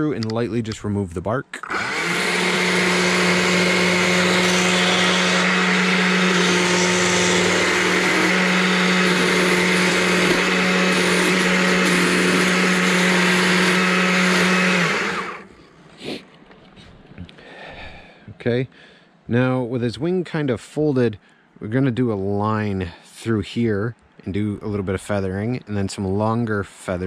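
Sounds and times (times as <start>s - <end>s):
chainsaw running: 1.6s - 15.5s.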